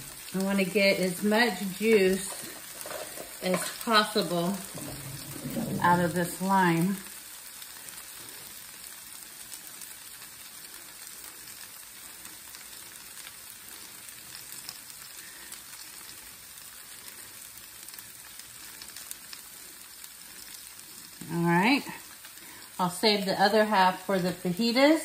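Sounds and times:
vegetables sizzling in a pan: 0.0 - 25.0.

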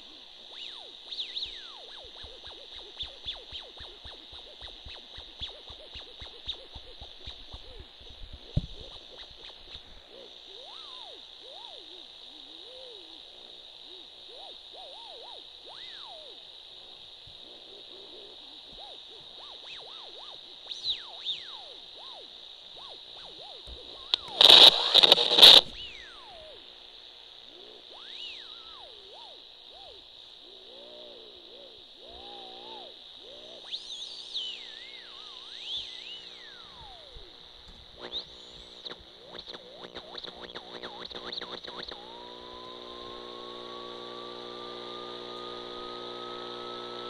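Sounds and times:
wavering electronic tones: 0.0 - 16.4, 17.5 - 47.0
steady high hiss: 0.0 - 47.0
burst of radio static: 23.6 - 26.5, 32.2 - 47.0.

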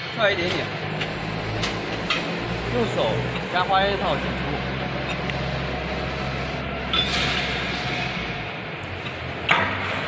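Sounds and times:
steady low hum: 0.3 - 10.0
metallic scrape: 6.3 - 8.6.

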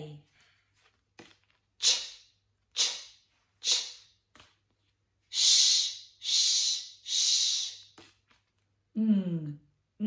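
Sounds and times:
woman hissing sh sounds: 1.8 - 4.2, 5.3 - 8.0.

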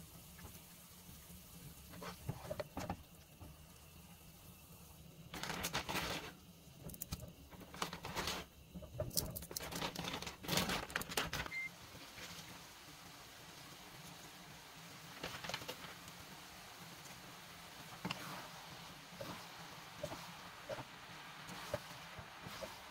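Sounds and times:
rustling and crinkling: 5.3 - 12.5, 15.1 - 16.2.

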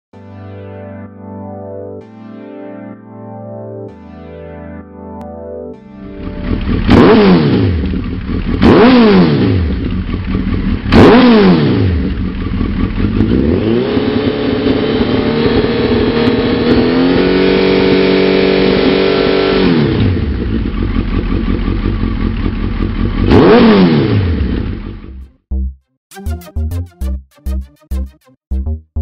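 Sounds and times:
synth music: 0.2 - 7.8, 25.4 - 29.0
motorcycle engine revving: 6.0 - 25.2.

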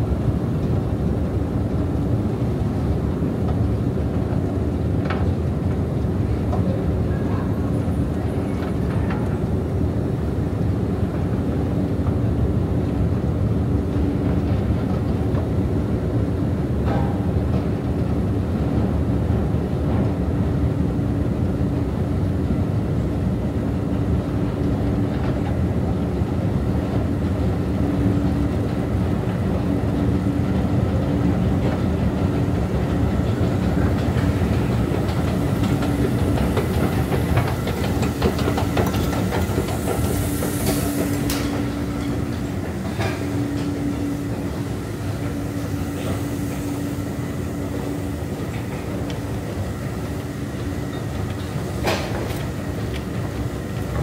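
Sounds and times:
escalator rumbling and rattling: 23.9 - 54.0
escalator steps clicking: 28.2 - 54.0.

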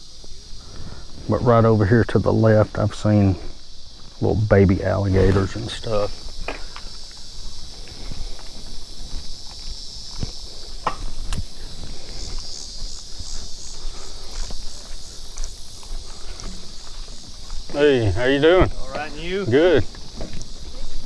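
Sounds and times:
insects trilling: 0.0 - 21.0
footsteps: 2.5 - 21.0
knocks and scuffs: 5.2 - 21.0.

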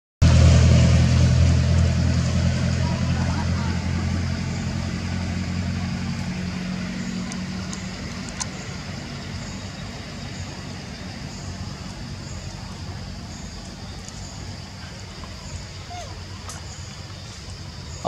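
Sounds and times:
engine humming: 0.2 - 18.0.

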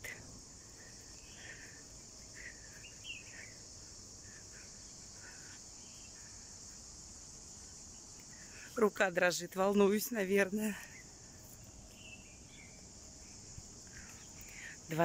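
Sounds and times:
insects chorus: 0.0 - 15.0
soft bird chirps: 0.8 - 6.8, 10.8 - 14.8.

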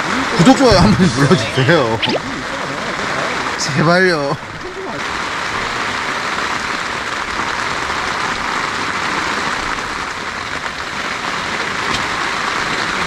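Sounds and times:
rain pattering on tent fabric: 0.0 - 13.0.

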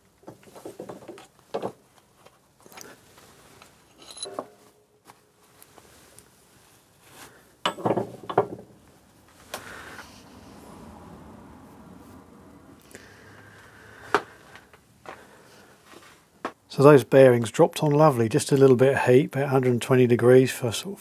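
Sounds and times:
metal parts clinking and knocking: 3.6 - 4.8, 7.6 - 8.7
metallic ring: 3.8 - 5.0.

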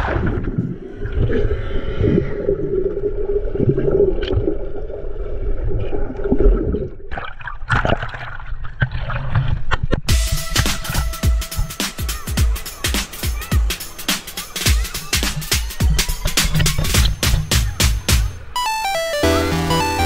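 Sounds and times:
underwater bubbling: 0.0 - 9.8
water splashing and sloshing: 0.0 - 11.0.

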